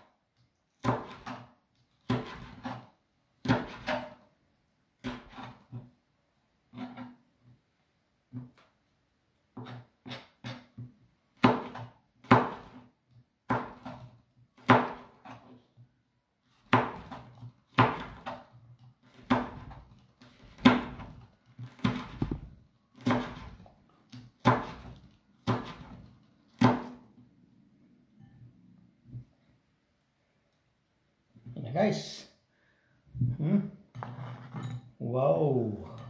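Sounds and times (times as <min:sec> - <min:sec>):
knife chopping on cutting board: 0:00.8 - 0:04.2, 0:05.0 - 0:05.8, 0:09.6 - 0:12.9, 0:13.5 - 0:15.5, 0:16.6 - 0:27.0.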